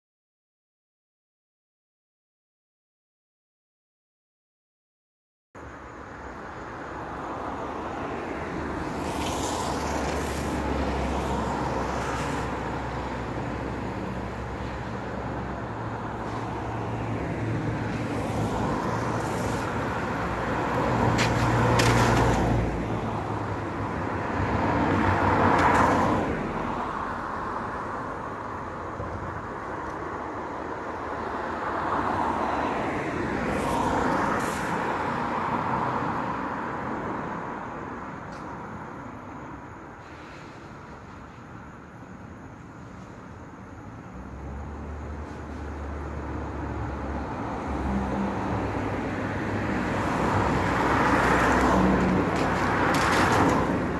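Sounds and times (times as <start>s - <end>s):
tyres hissing on wet road: 6.4s - 38.6s, 39.7s - 42.0s, 42.7s - 53.9s.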